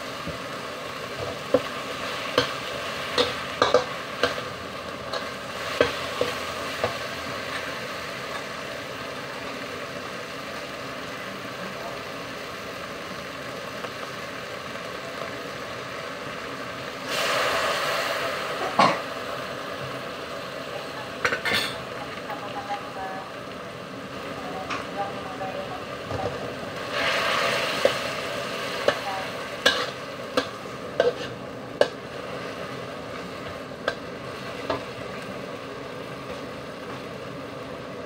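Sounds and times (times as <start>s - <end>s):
okra sizzling in a wok: 0.0s - 38.0s
metal spatula scraping a pan: 29.6s - 31.4s.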